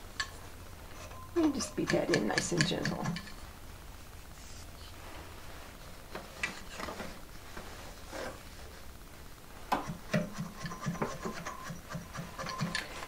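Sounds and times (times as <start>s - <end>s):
yarn rubbing on loom strings: 0.9s - 3.4s, 9.8s - 13.0s.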